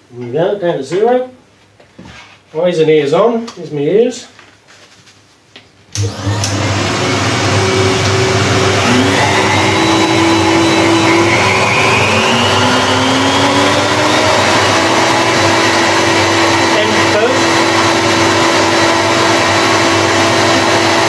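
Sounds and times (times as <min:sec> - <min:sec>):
router whining: 0:06.0 - 0:21.0.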